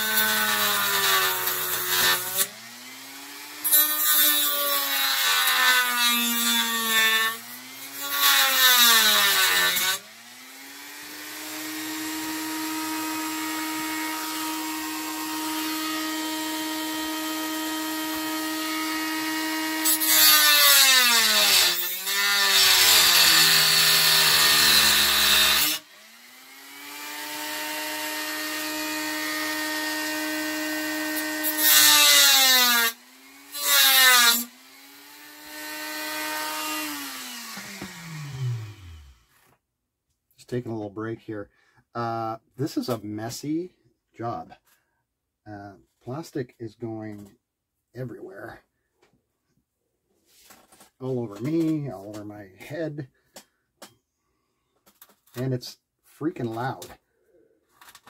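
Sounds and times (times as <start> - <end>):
rotary tool motor whine: 36.7 - 39.3.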